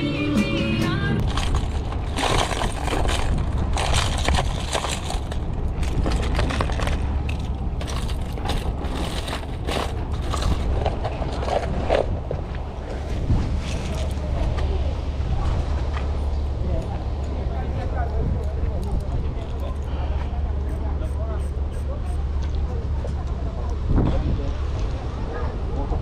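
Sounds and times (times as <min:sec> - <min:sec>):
steady low rumble: 0:00.0 - 0:26.0
plastic lures clattering: 0:01.2 - 0:11.7.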